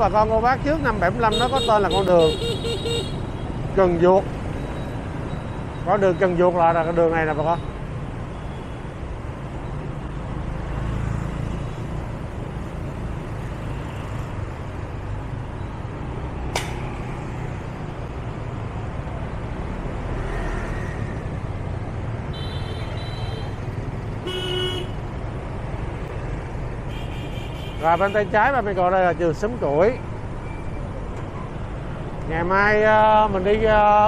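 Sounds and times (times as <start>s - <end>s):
city road traffic: 0.0s - 34.0s
vehicle horns beeping: 1.3s - 3.5s, 22.3s - 23.6s, 24.2s - 25.0s, 26.9s - 28.3s
sharp click: 16.5s - 17.0s.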